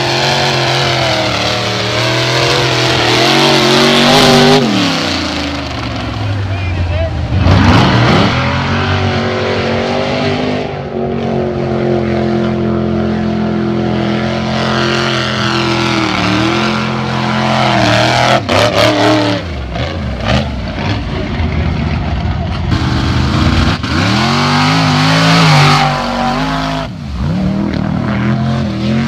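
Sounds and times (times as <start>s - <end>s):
truck engine revving: 0.0s - 29.0s.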